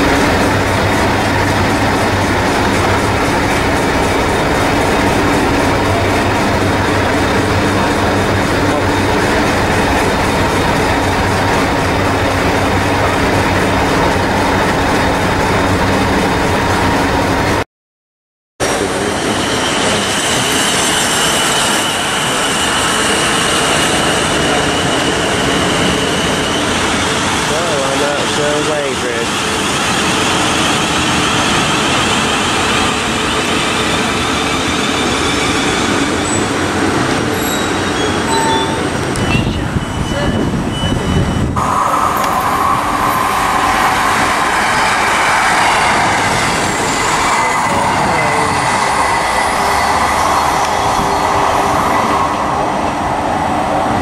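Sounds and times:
train diesel engine droning: 0.0 - 17.6, 18.6 - 54.0
wheels rushing on rail: 0.0 - 17.6, 18.6 - 54.0.

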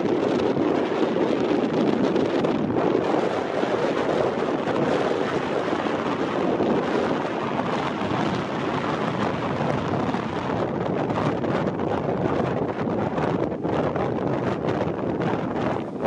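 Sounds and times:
small waves washing onto beach: 0.0 - 12.0
wind on microphone: 0.0 - 16.0.

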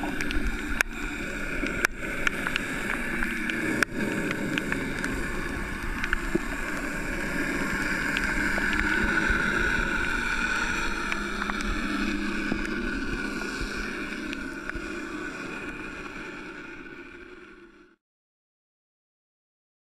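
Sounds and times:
sharp underwater clicks: 0.0 - 15.2
muffled underwater drone: 0.0 - 18.0.

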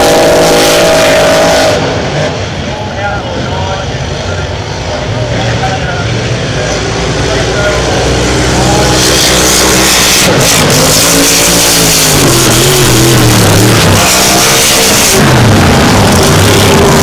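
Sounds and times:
race boat engines roaring past: 0.0 - 17.0.

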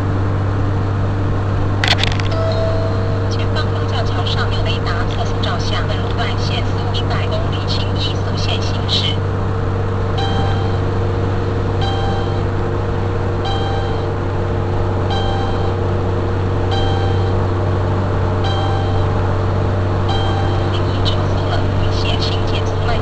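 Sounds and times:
car engine and road drone: 0.0 - 23.0
short electronic beep: 16.7 - 17.4, 18.4 - 19.1.

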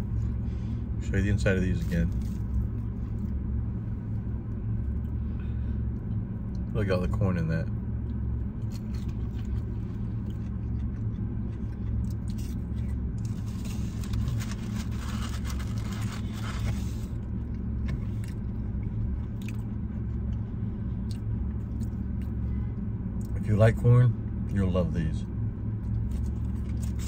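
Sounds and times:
car engine rumble from inside cabin: 0.0 - 27.0
rustling and scraping: 12.3 - 18.4, 26.0 - 27.0.

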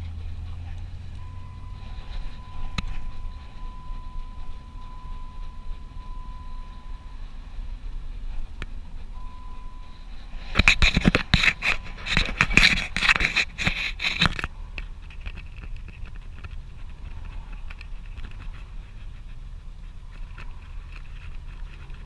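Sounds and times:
low steady rumble: 0.0 - 22.0
camera mount scraping and rustling: 10.4 - 14.5.

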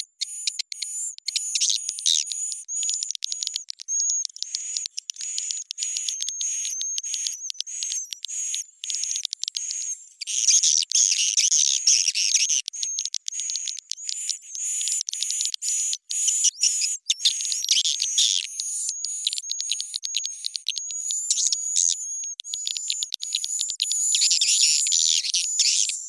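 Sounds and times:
high-pitched bird twittering chirps: 0.0 - 26.0.

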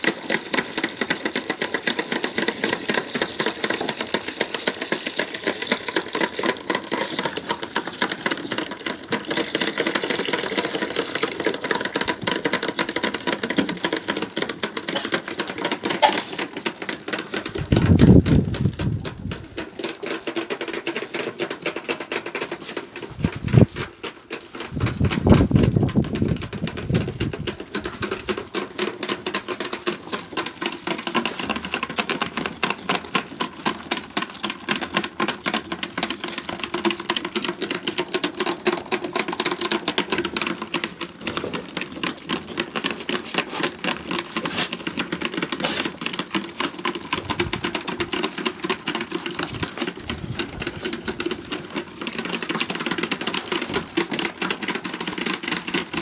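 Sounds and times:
lambs sucking and smacking: 0.0 - 56.0.

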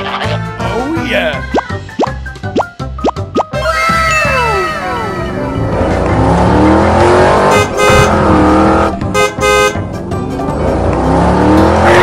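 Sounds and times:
background music: 0.0 - 12.0
horn honking: 7.0 - 10.0.

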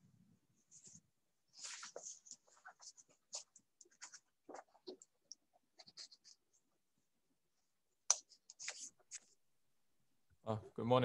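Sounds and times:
pen scratching on paper: 1.6 - 6.6, 8.1 - 9.3.

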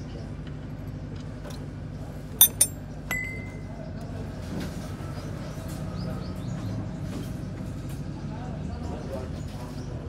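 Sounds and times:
low workshop hum: 0.0 - 5.2
metallic clinks of drain plug: 2.4 - 3.4.

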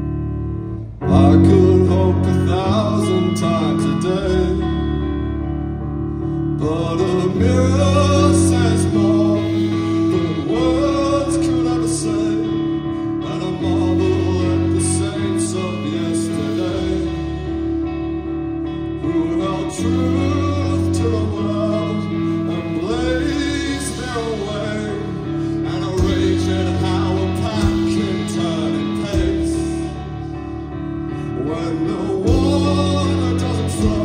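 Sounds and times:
bass guitar: 0.0 - 34.0
electric guitars: 0.0 - 34.0
lead melody through microphone: 0.0 - 34.0
drums: 7.0 - 34.0.

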